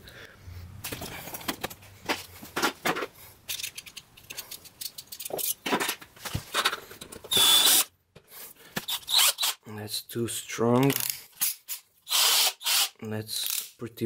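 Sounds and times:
cordless drill driving screw: 7.3s - 7.9s, 8.9s - 9.6s, 12.1s - 13.7s.

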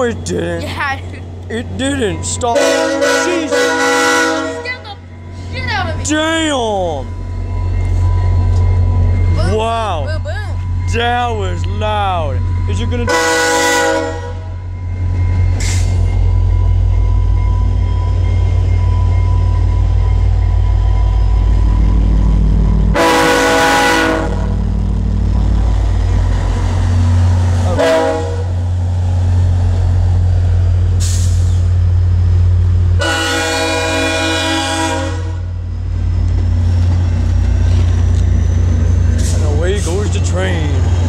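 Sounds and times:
diesel locomotive engine rumble: 0.0s - 41.0s
locomotive horn blasts: 2.5s - 5.0s, 12.6s - 14.7s, 22.9s - 24.6s, 27.6s - 28.6s, 33.0s - 35.5s.

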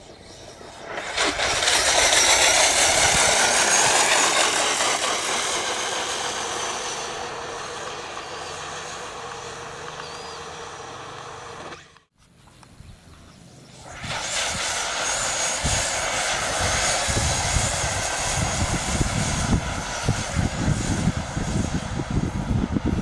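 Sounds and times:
electric motor whine: 0.0s - 23.0s
hiss of water spray: 0.6s - 9.5s, 13.7s - 23.0s.

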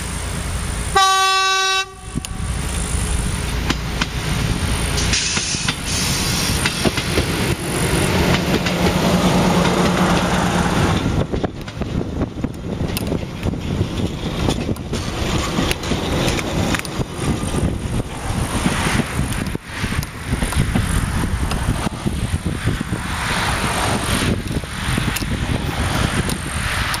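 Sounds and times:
diesel railcar rumbling: 0.0s - 27.0s
car passing: 16.6s - 27.0s.

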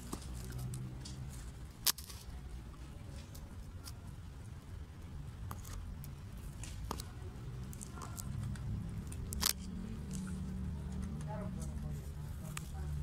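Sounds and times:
cats crunching dry kibble: 5.4s - 12.9s.

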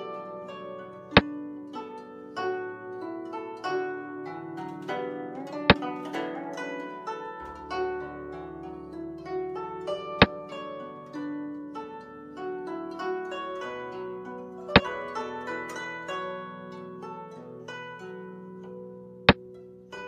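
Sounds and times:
plucked-string background music: 0.0s - 20.0s.

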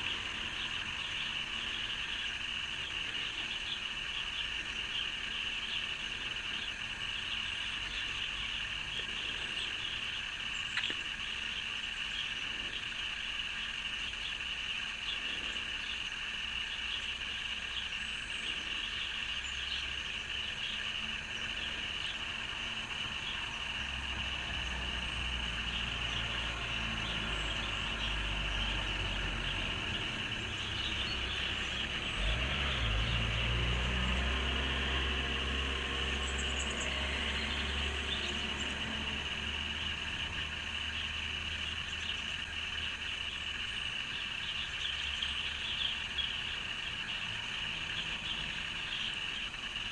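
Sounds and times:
faint flickering chirps: 0.0s - 23.8s
steady high-pitched hiss: 0.0s - 49.9s.

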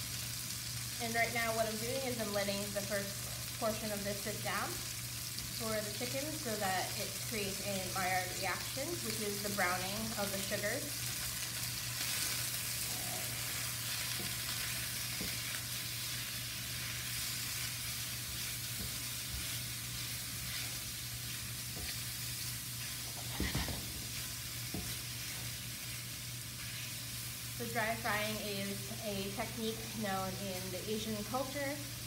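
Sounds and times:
chicken sizzling in a skillet: 0.0s - 32.0s
spatula scraping a pan: 12.0s - 27.0s.

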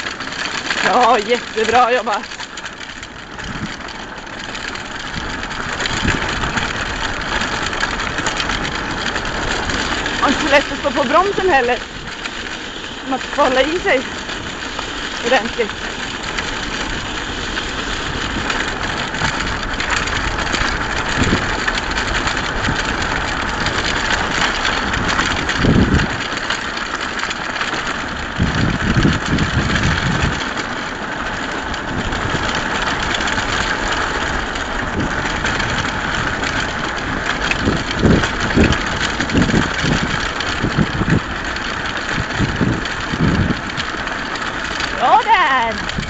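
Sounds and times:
wheels rolling over gravel: 0.0s - 46.0s.

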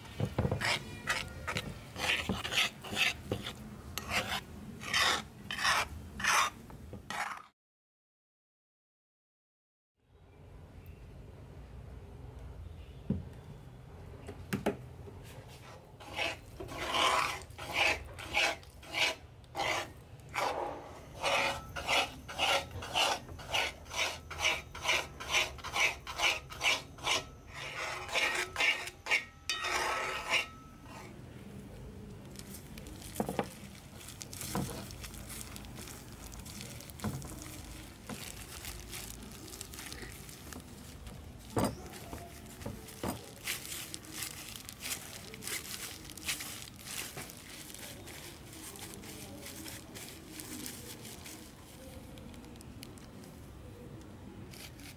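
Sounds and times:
metal spoon scraping a pan: 0.6s - 7.5s, 16.0s - 31.2s.

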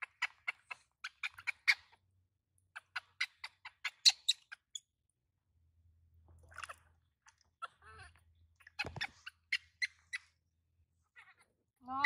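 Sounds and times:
baby monkey squeaking: 0.0s - 2.0s, 2.7s - 4.9s, 7.6s - 10.4s.

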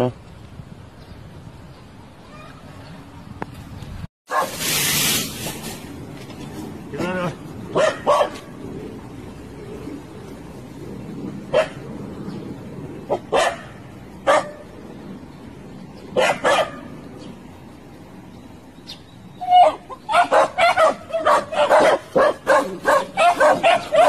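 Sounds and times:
small dog barking: 7.7s - 8.4s, 11.5s - 11.8s, 13.3s - 14.6s, 16.2s - 16.8s, 19.5s - 24.0s.

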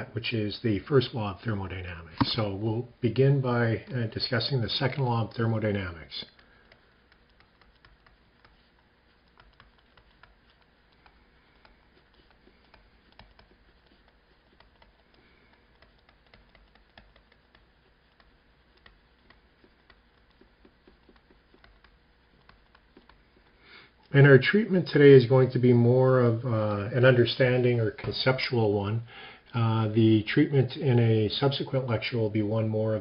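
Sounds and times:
stylus tapping on tablet screen: 5.7s - 23.6s.

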